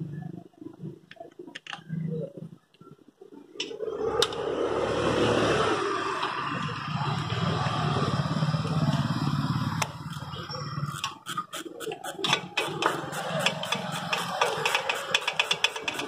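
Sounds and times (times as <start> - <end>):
hand tool clicking on bolts: 10.9 - 16.0.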